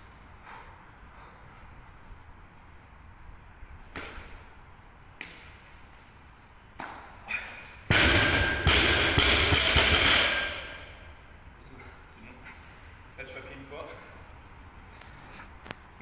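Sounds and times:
barbell dropped on concrete: 7.9s - 10.9s.

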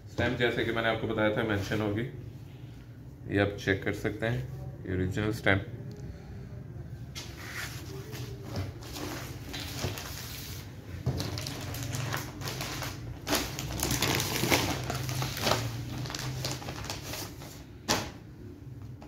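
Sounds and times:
plastic packaging crinkling: 7.9s - 17.6s.

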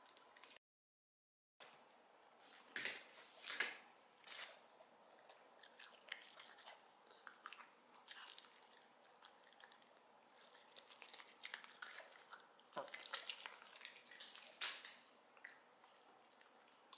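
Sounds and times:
dog chewing: 4.3s - 16.9s.

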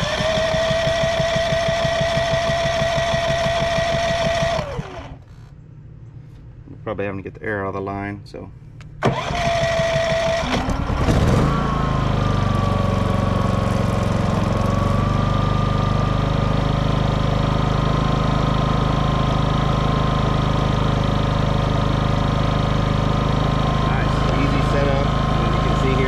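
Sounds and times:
electric starter cranking: 0.0s - 5.6s, 9.0s - 16.6s, 17.4s - 26.0s
generator engine running: 0.0s - 5.7s, 9.0s - 26.0s.

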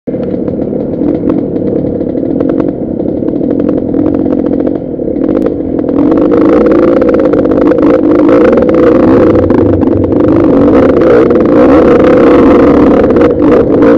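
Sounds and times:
dirt bike engine running: 0.1s - 13.9s.

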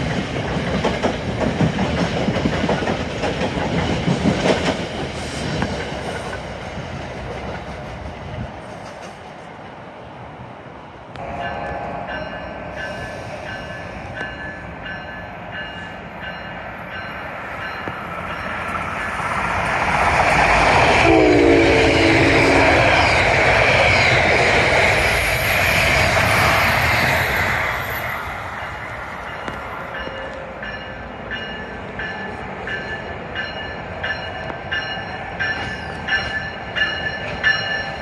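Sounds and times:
train rushing past on rails: 0.0s - 38.0s
deep train horn: 20.6s - 23.4s.

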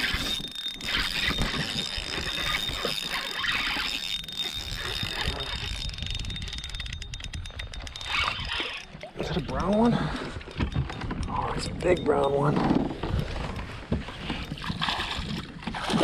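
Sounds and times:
fishing reel clicks: 0.0s - 9.8s
fishing reel gears whirring: 0.0s - 16.0s.

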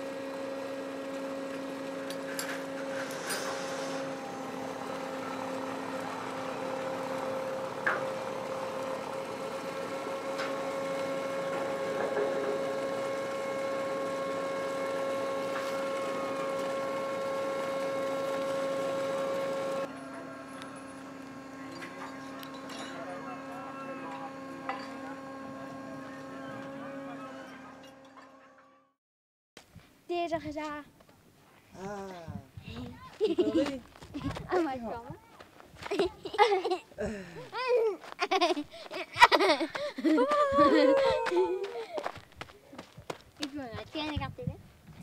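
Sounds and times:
machinery hum: 0.0s - 28.9s, 32.8s - 45.0s
high machine whine: 0.0s - 29.0s, 38.0s - 44.2s.

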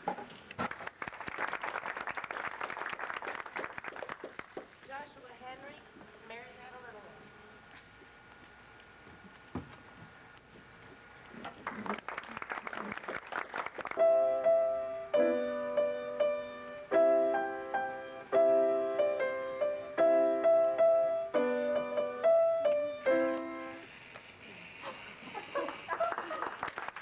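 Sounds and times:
piano chords: 14.0s - 23.8s.

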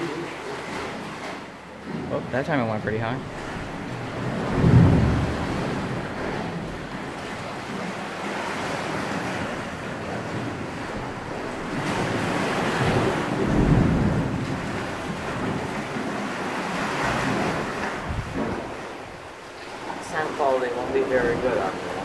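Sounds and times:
sea waves washing in a cave: 0.0s - 22.0s
wind buffeting the microphone: 3.3s - 7.9s, 8.6s - 19.3s.

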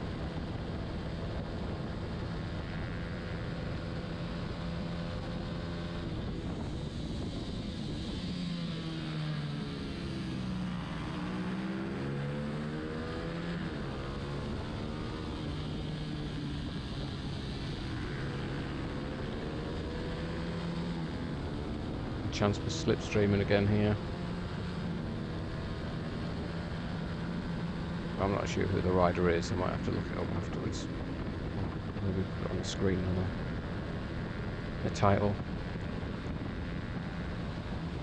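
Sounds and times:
motorcycle engine revving: 1.6s - 38.0s
wind rush: 30.2s - 32.6s.

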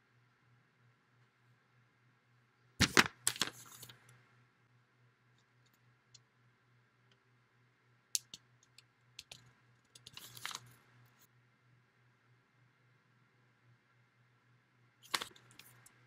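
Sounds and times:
faint low hum: 3.6s - 16.0s.

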